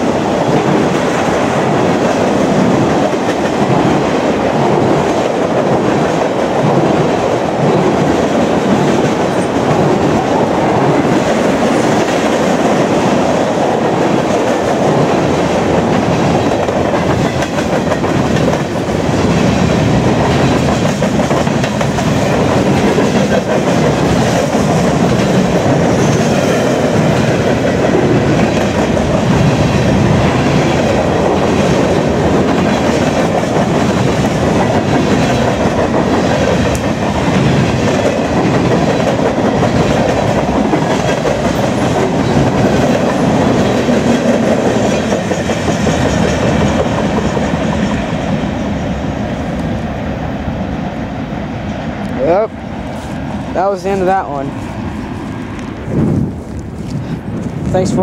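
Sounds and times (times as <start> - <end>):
train wheels rumbling on rail: 0.0 - 58.0
clacking over rail joints: 13.8 - 48.0.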